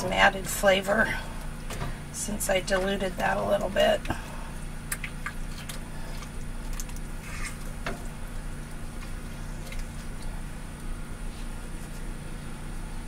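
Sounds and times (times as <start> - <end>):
steady low hum: 0.0 - 13.0
spatula scraping a skillet: 7.2 - 7.6.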